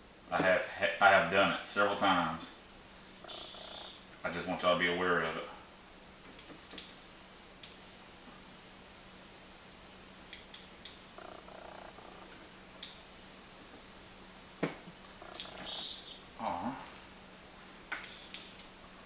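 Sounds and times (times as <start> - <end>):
airbrush air hiss: 0.6 - 4.1, 6.4 - 16.3, 18.0 - 18.7
sharp click: 17.9 - 18.7.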